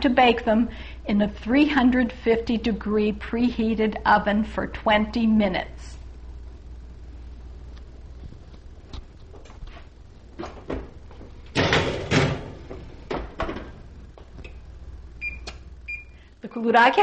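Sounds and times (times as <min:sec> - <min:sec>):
oven door opening and shutting: 0:10.4 - 0:13.8
baking sheet clattering onto rack: 0:11.6 - 0:12.6.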